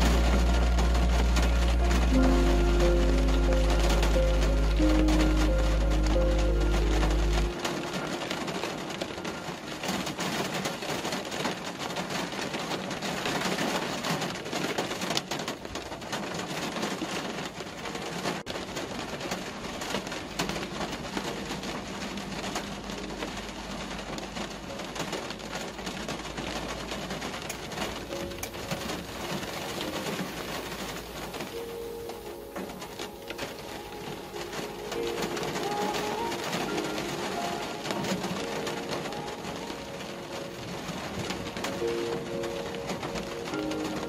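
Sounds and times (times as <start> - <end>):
low road rumble: 0.0 - 11.6
rain pattering on a car: 0.0 - 44.0
tyre noise on wet road: 0.0 - 44.0.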